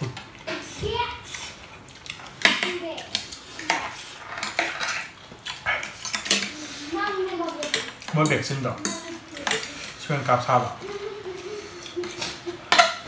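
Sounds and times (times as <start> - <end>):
cutlery clinking on plates: 2.1 - 6.5, 7.6 - 10.0, 11.9 - 13.0.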